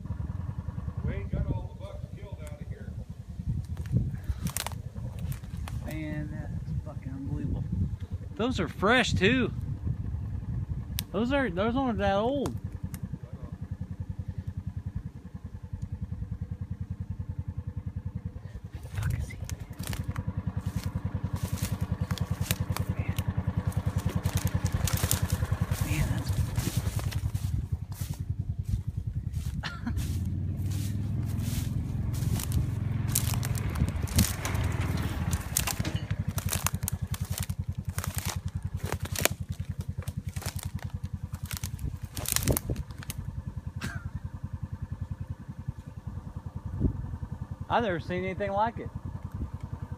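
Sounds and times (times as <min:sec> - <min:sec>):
low even throbbing: 0:00.0 - 0:49.9
vehicle engine idling: 0:00.0 - 0:49.9
brush crackling underfoot: 0:02.4 - 0:06.2, 0:18.6 - 0:43.7
footsteps through dry grass: 0:03.4 - 0:06.0, 0:18.7 - 0:43.3.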